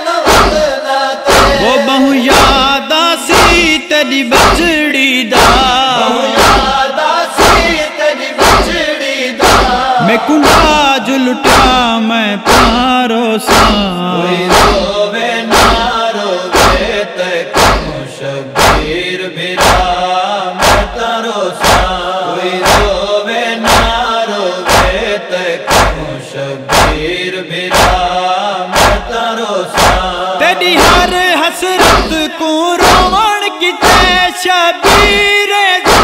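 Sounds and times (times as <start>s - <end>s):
men chanting a refrain: 0.0s - 36.0s
chest-beating thumps: 0.2s - 0.7s, 1.3s - 2.7s, 3.3s - 3.8s, 4.4s - 4.8s, 5.4s - 6.8s, 7.4s - 7.8s, 8.4s - 20.0s, 20.6s - 21.0s, 21.6s - 22.0s, 22.6s - 23.1s, 23.7s - 24.0s, 24.6s - 25.1s, 25.7s - 28.1s, 28.7s - 29.1s, 29.8s - 31.2s, 31.8s - 36.0s.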